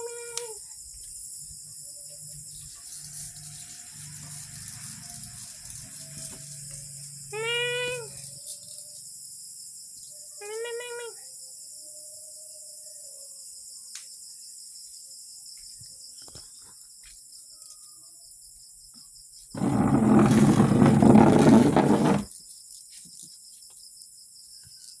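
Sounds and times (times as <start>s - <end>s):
crickets chirping: 0.0s - 25.0s
loud rough noise: 19.6s - 22.3s.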